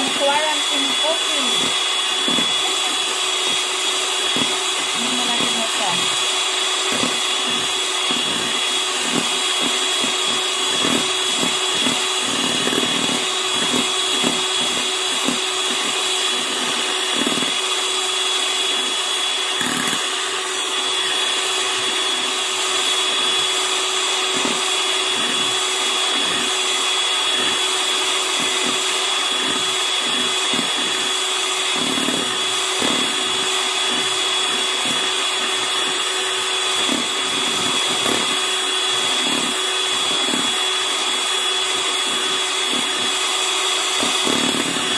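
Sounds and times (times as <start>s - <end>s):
electric hand mixer whining: 0.0s - 44.9s.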